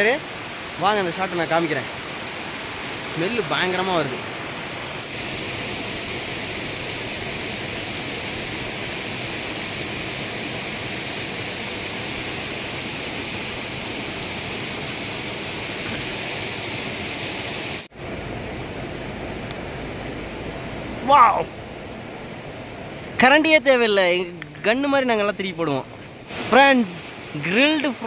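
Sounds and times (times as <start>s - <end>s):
waterfall rushing: 0.0s - 28.0s.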